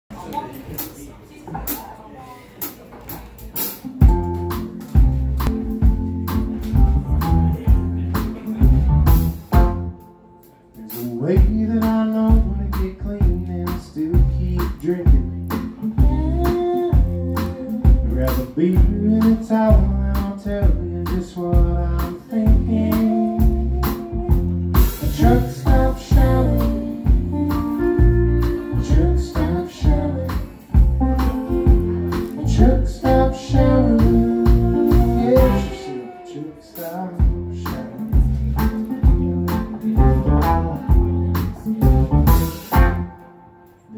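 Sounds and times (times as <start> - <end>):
drums steady beat: 2.6 - 10.1, 10.7 - 43.3
live band electric guitars: 2.7 - 43.9
woman singing: 15.9 - 18.2, 25.0 - 31.3, 32.2 - 37.3
guitar rising slide: 33.8 - 37.2.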